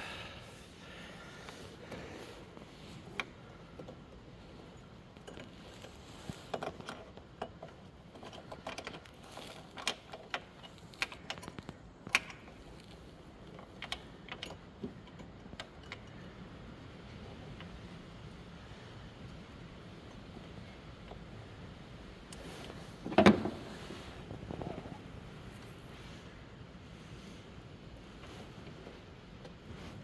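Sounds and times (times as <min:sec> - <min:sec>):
small plastic parts clicking: 0:06.5 - 0:17.0.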